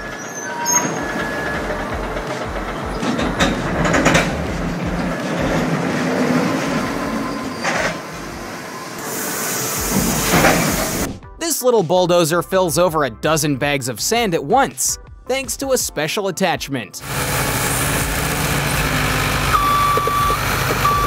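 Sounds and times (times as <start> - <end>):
machinery rumble: 0.0 - 11.2, 17.0 - 21.0.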